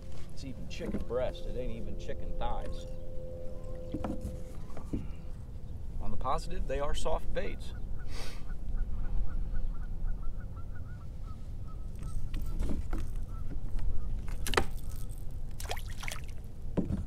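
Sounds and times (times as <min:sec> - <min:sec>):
geese honking: 0:00.1 - 0:05.3, 0:07.6 - 0:12.6.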